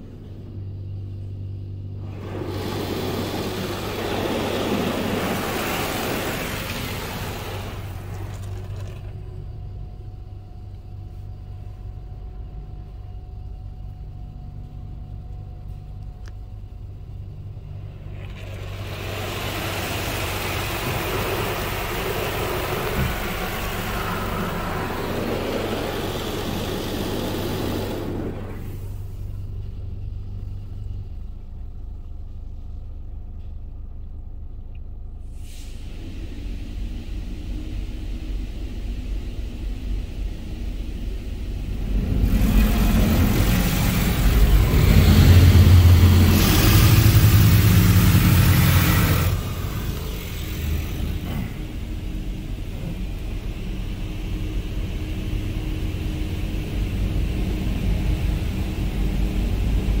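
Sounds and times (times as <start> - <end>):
car wash water rushing: 1.9 - 9.7, 17.2 - 31.1, 35.4 - 60.0
water drumming on windshield: 2.1 - 9.2, 18.2 - 28.7.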